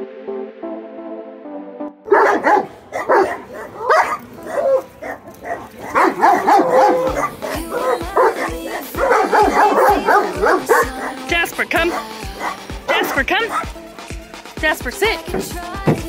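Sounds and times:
dog barking and whining: 2.1 - 13.7
music with steady beat: 6.4 - 16.0.

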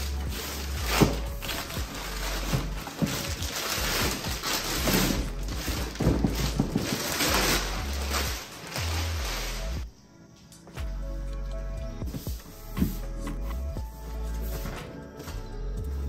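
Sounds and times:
background music with bass: 0.0 - 9.9, 10.7 - 16.0
plastic bag crinkling: 0.0 - 9.9.

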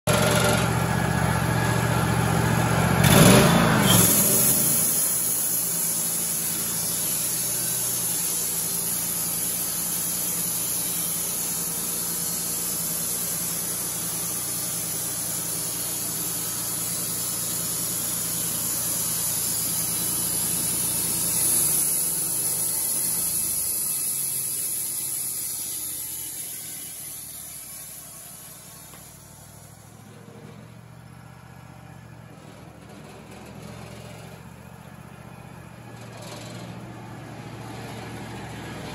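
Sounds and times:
sawmill engine running: 0.1 - 38.9
band blade cutting wood hiss: 3.1 - 30.0.

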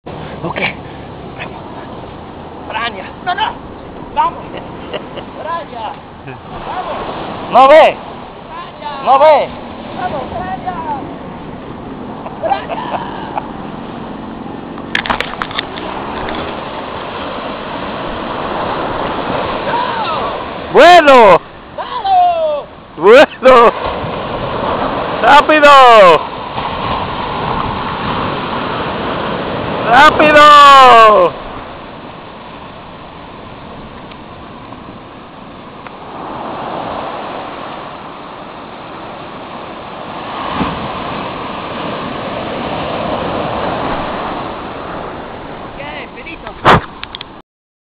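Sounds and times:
waves washing up a beach: 0.0 - 47.4
short thump: 46.6 - 47.0.

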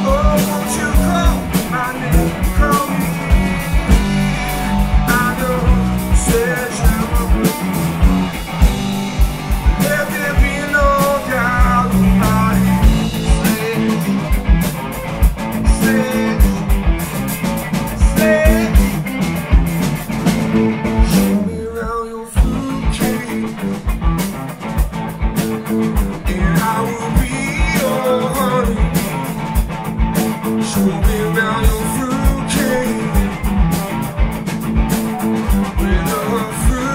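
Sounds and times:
man singing: 0.0 - 8.7, 9.6 - 14.4, 15.5 - 16.9, 17.8 - 19.1, 21.0 - 24.0, 26.0 - 29.3, 30.4 - 33.8, 35.4 - 36.9
drum kit beat: 0.0 - 36.9
electric guitar: 0.0 - 36.9.

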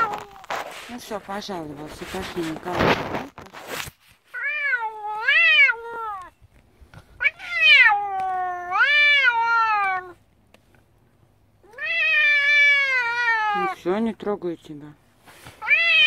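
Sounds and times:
cat meowing: 0.0 - 0.5, 4.3 - 6.4, 7.2 - 10.2, 11.6 - 13.9, 15.6 - 16.0.

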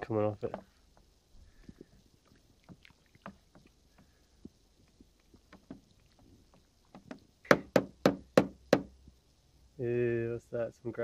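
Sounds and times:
spoon stirring water: 0.4 - 7.3
water splashes and drips: 1.7 - 7.2.

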